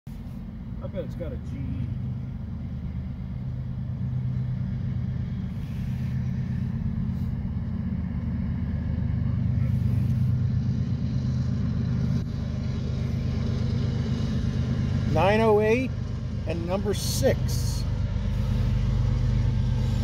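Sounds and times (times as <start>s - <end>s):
engine droning: 0.1s - 20.0s.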